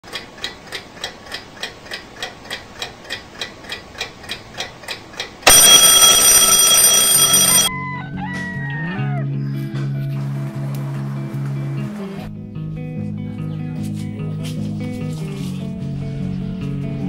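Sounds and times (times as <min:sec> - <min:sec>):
alarm clock ticking: 0:05.5 - 0:07.7
alarm ringing: 0:05.5 - 0:07.7.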